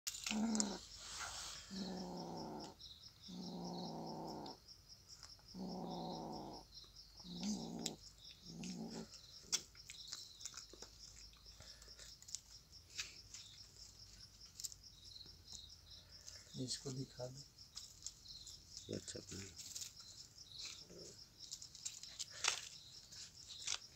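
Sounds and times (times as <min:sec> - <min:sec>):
cat growling: 0:00.1 - 0:04.6, 0:05.5 - 0:09.2
cricket chirping: 0:00.1 - 0:23.9.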